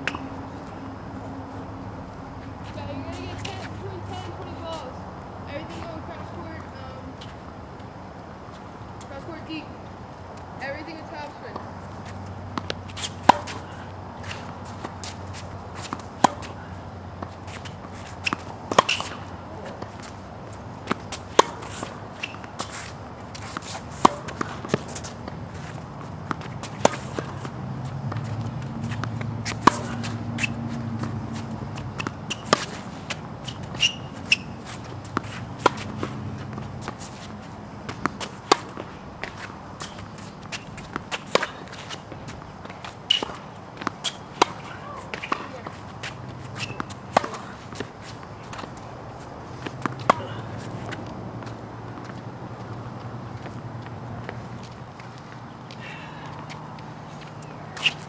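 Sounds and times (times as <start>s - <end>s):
sneakers scuffing on court: 2.4s - 58.0s
racket striking tennis ball: 10.8s - 52.2s.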